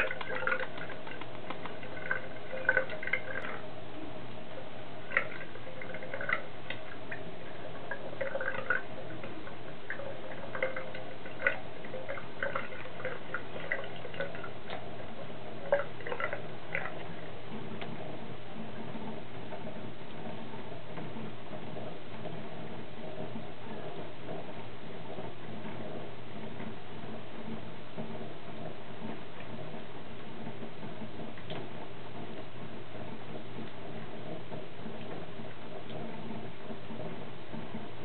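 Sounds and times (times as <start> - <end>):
water running from faucet: 0.0 - 3.6, 5.0 - 17.3
cat lapping water: 0.0 - 3.7, 5.0 - 38.0.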